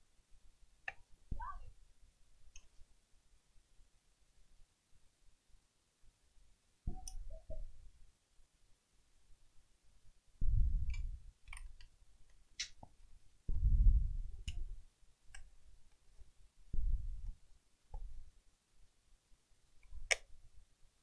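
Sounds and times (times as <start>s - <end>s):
small plastic clicks and taps: 0.8s - 1.1s, 2.5s - 2.8s, 10.8s - 13.0s, 14.4s - 14.7s, 19.8s - 20.3s.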